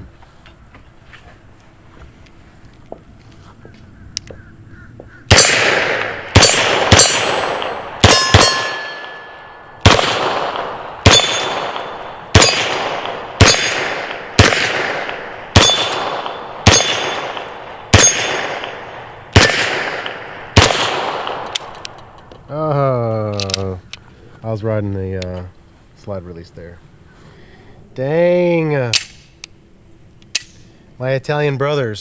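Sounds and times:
steel targets ringing: 5.3 - 14.1, 15.6 - 18.8
pistol shots: 5.3 - 21.9.

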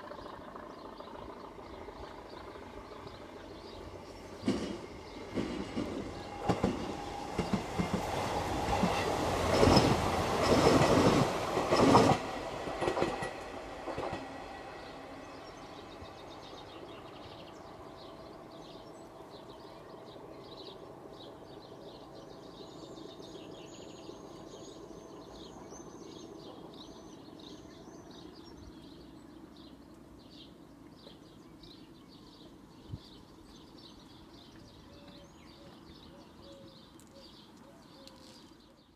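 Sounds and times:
diesel locomotive rumble: 0.0 - 29.5.

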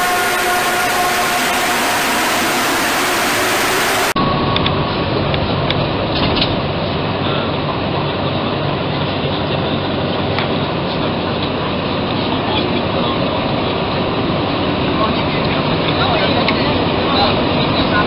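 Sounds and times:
held chord over hiss: 0.0 - 5.0
metro train humming: 0.0 - 18.0.

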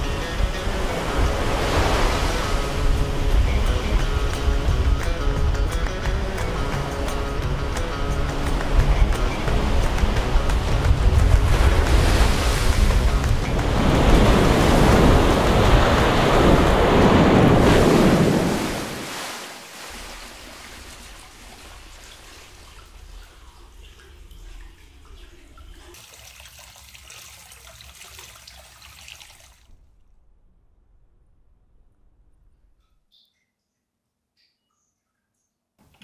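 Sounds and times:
ocean surf rushing and breaking: 0.0 - 22.8
water trickling and lapping: 5.8 - 29.8.

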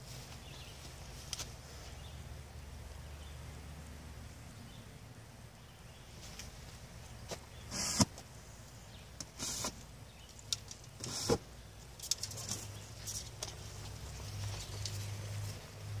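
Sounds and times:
arrows scraping out of target: 7.7 - 8.2.

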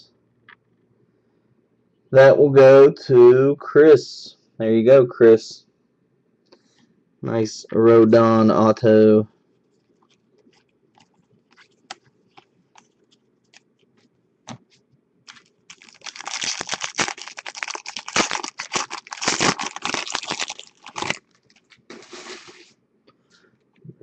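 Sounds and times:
foil wrapper tearing and crinkling: 15.3 - 22.6.

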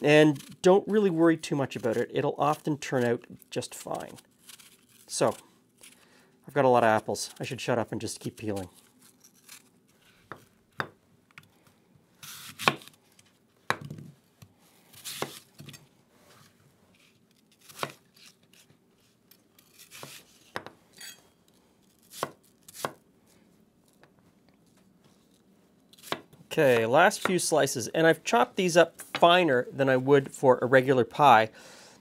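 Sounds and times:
knife slicing apples: 0.0 - 6.0, 12.2 - 13.0, 14.9 - 15.8, 17.0 - 21.2, 22.0 - 23.0, 25.9 - 27.6.

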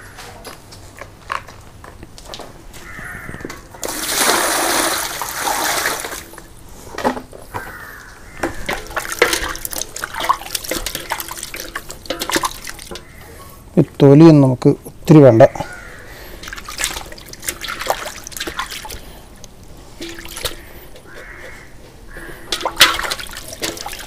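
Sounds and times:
water pouring into metal basin: 3.8 - 6.4, 8.6 - 13.2, 16.4 - 19.4, 20.0 - 21.2, 22.2 - 24.0
hands splashing in water: 16.4 - 19.2, 22.4 - 24.0.

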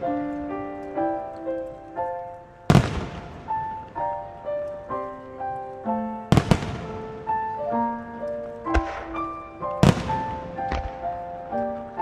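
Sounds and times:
music with held notes: 0.0 - 12.0
fireworks booming: 2.7 - 4.9, 6.3 - 12.0.

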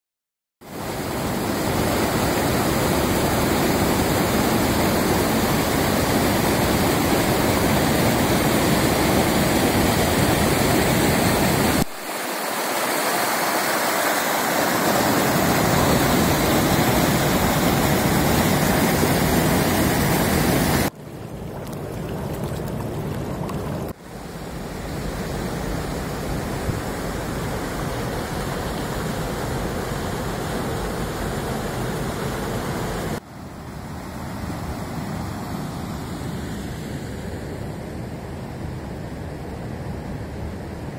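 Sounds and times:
creek rushing over rocks: 0.7 - 33.2.

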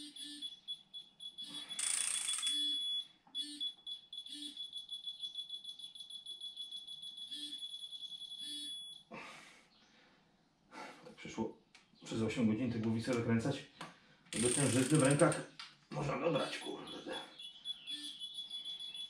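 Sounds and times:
high-pitched electronic beeping: 0.0 - 9.0.

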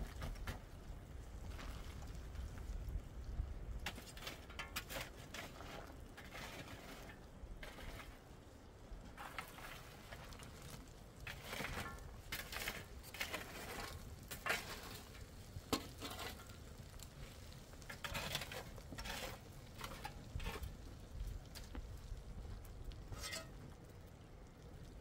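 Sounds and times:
utensils scraping a pan: 3.8 - 8.2, 11.2 - 16.5, 17.8 - 20.7, 23.1 - 23.6.

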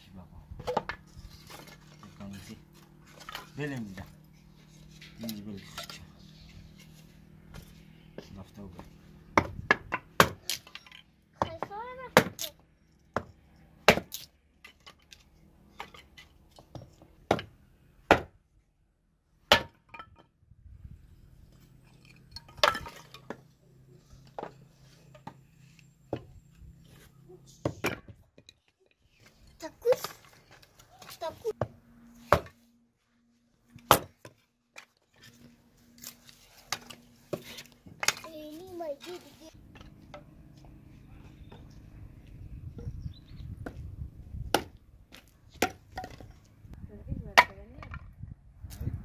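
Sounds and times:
hatchet chopping wood: 9.4 - 10.8, 11.4 - 12.5, 13.1 - 14.3, 16.7 - 18.4, 19.5 - 19.9, 33.8 - 34.3, 44.5 - 46.3
wooden sticks knocking and clattering: 21.8 - 23.5.

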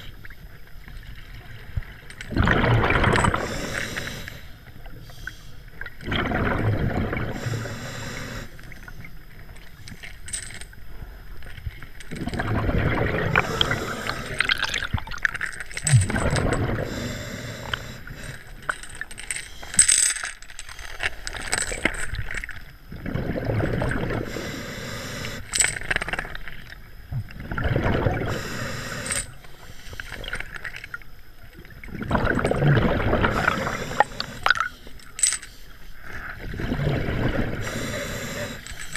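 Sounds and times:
bubbling exhaled air: 2.3 - 4.5, 5.2 - 8.7, 12.1 - 19.7, 22.9 - 25.5, 27.4 - 30.6, 31.8 - 35.0, 36.0 - 38.9
diver breathing through regulator: 3.1 - 5.6, 7.2 - 9.1, 13.2 - 14.9, 15.8 - 19.9, 24.0 - 25.8, 28.1 - 30.6, 33.1 - 38.9.

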